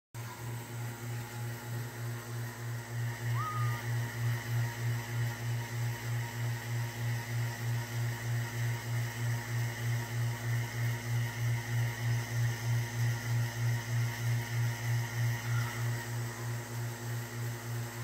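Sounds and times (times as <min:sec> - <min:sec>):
faint high whine: 0:00.2 - 0:06.1, 0:14.3 - 0:16.9
low throbbing machine hum: 0:00.2 - 0:18.0.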